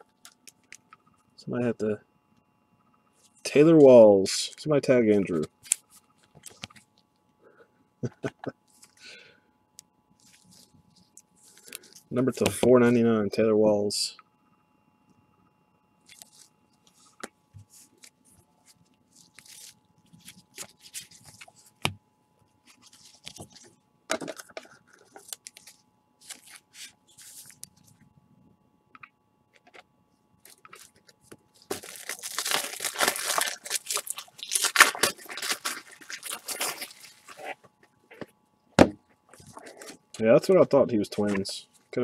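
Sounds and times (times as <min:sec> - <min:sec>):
plastic crinkling and tearing: 0:16.0 - 0:21.9, 0:22.6 - 0:27.8, 0:30.4 - 0:37.7.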